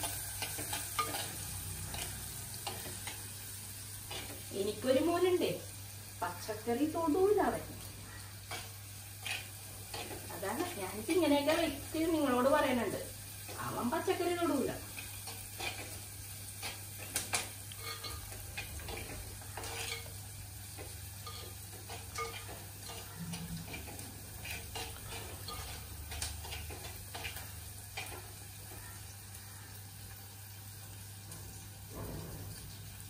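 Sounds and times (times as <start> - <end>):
food frying: 0.0 - 33.0
spoon scraping clay pot: 0.1 - 2.9, 8.5 - 10.2, 16.6 - 20.2, 20.8 - 28.2.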